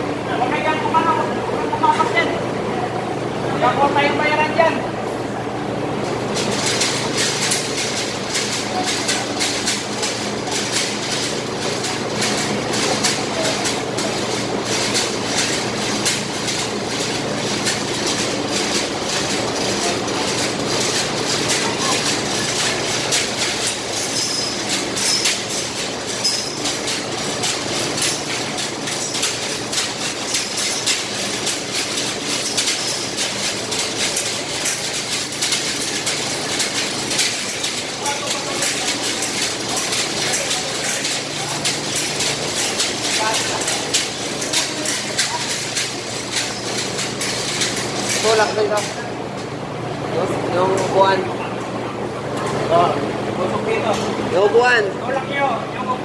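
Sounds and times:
low mechanical hum: 0.0s - 56.0s
rapid metallic chain rattling: 6.4s - 49.1s.

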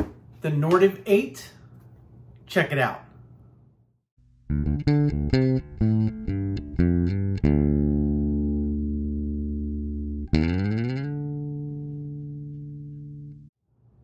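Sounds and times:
guitar playing: 4.2s - 13.5s.

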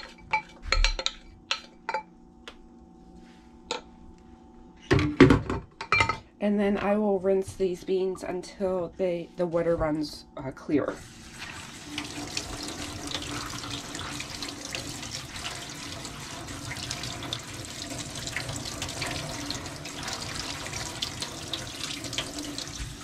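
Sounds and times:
faucet water splashing into sink: 11.2s - 23.0s.

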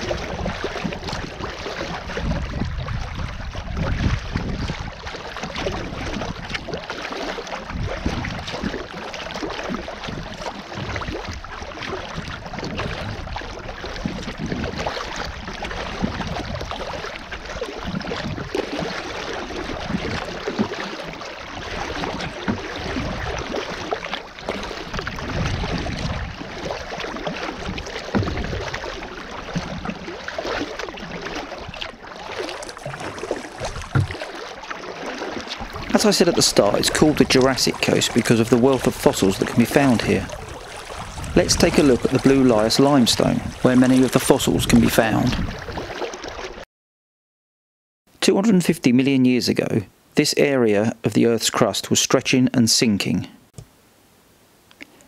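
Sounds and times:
wind rumbling on microphone: 0.0s - 6.9s, 7.5s - 20.9s, 21.6s - 34.3s, 35.6s - 46.0s
water splashing against kayak: 0.0s - 46.6s.

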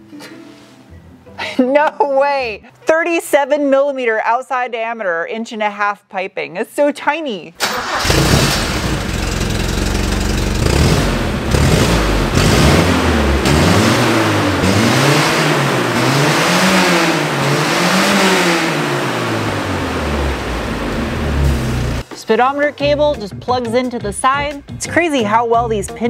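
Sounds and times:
car engine idling and revving: 7.8s - 22.0s.

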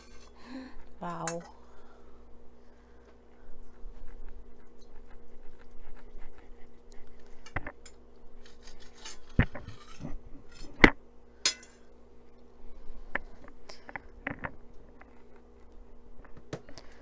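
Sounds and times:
faint steady hum: 0.0s - 17.0s
knife rasping through meat: 3.7s - 7.6s
cutlery clinking on a plate: 11.5s - 11.8s.

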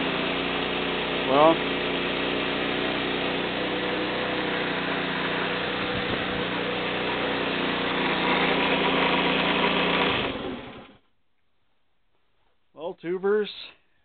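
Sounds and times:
moped engine idling unevenly: 1.1s - 2.0s.

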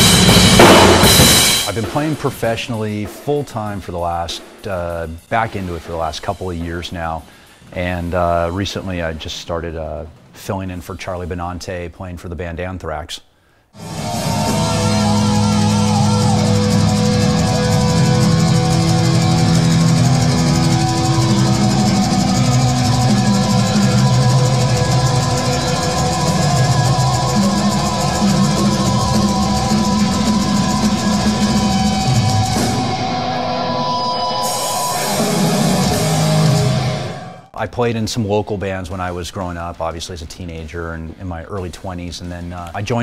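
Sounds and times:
metal band playing live: 0.0s - 3.4s, 13.8s - 37.5s.

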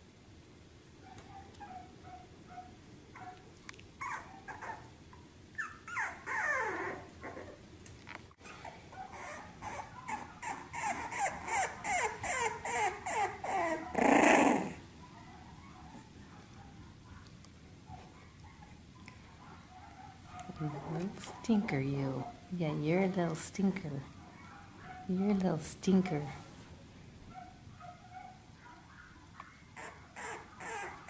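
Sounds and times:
puppies whimpering and whining: 4.0s - 5.0s, 5.6s - 7.6s, 8.4s - 14.8s, 29.8s - 31.0s.

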